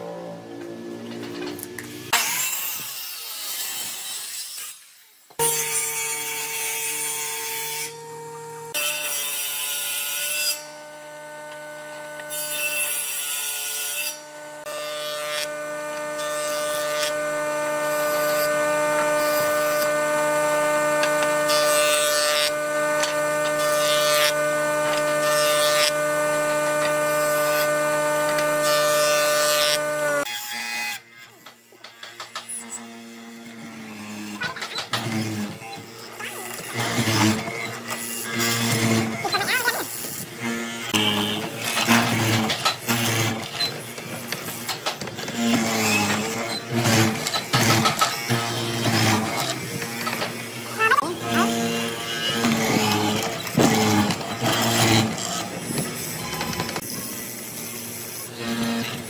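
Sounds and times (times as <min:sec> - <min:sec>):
circular saw cutting wood: 0:00.0 - 0:59.0
jointer planing boards: 0:05.4 - 0:59.0
steady motor hum: 0:10.6 - 0:12.7, 0:14.2 - 0:30.3, 0:45.2 - 0:59.0.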